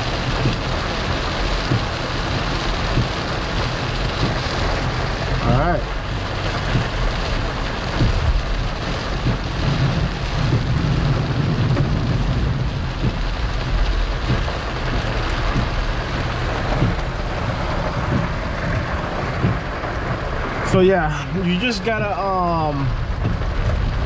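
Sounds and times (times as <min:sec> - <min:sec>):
low road rumble: 0:00.0 - 0:24.0
rain on car: 0:00.0 - 0:24.0
tyres on wet road: 0:00.0 - 0:24.0.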